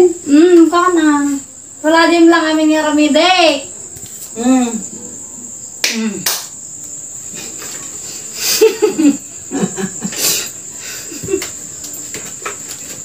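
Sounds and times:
crickets chirping: 0.0s - 13.0s
hand claps: 5.8s - 6.6s.

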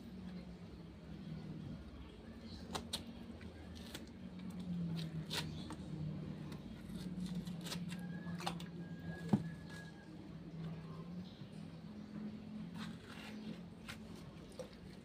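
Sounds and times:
coconut shell clicks and scrapes: 2.5s - 9.8s, 12.5s - 15.0s.

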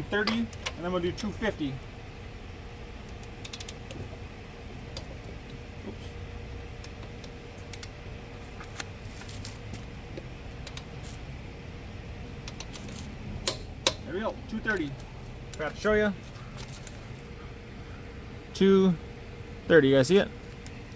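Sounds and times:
steady low hum: 0.0s - 20.9s
metallic clicks of socket and wrench: 3.1s - 3.9s, 12.4s - 14.0s.

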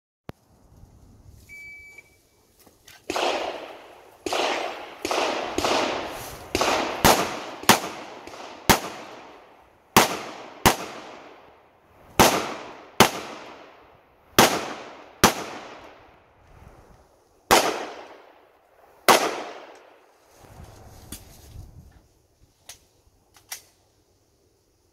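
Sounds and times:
handgun shots echoing: 3.0s - 9.4s, 10.0s - 11.4s, 17.5s - 18.2s, 19.1s - 19.9s.

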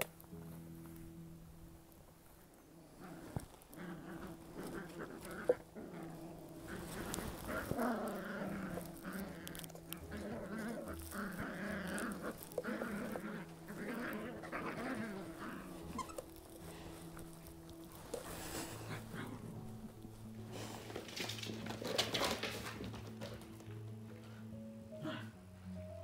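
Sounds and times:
puppies whimpering calls: 6.5s - 19.7s.

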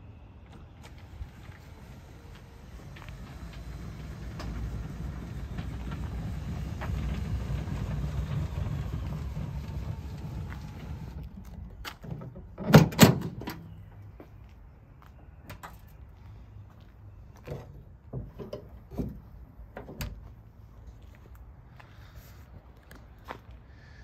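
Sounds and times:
roller cover rolling on rails: 0.5s - 13.4s
tailgate clunks: 12.0s - 13.7s.

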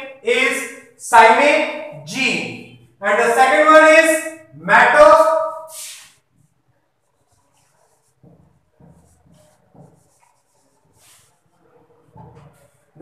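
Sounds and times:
marker pen writing on whiteboard: 3.1s - 13.0s.

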